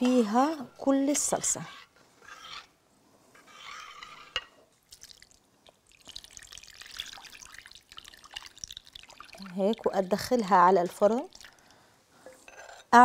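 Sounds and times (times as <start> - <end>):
liquid splashing and dripping: 4.9 - 10.0, 11.3 - 11.8.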